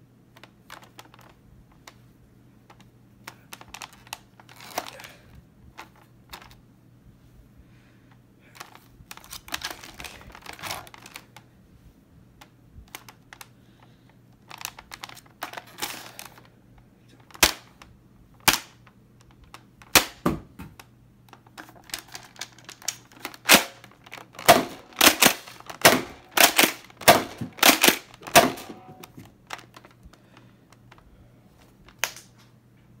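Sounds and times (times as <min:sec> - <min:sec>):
toy blaster rattling: 0:21.8 - 0:28.7
toy blaster firing clacks: 0:23.3 - 0:28.7.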